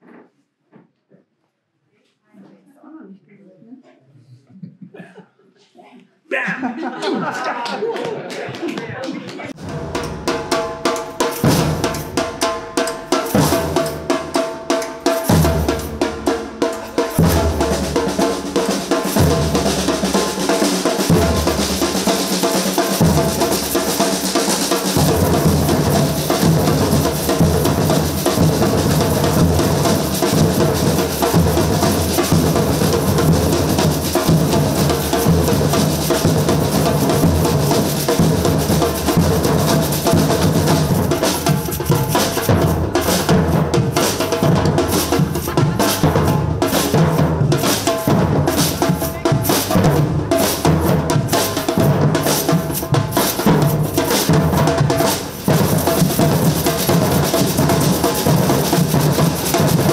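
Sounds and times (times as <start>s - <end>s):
snare drums: 9.5s - 59.9s
bass drums: 9.6s - 14.4s, 15.2s - 59.9s
metal jingle shakers: 10.9s - 16.1s, 24.7s - 43.3s.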